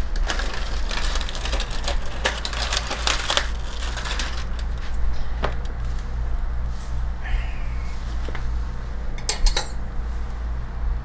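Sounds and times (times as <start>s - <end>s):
aluminium foil crinkling: 0.0s - 6.2s.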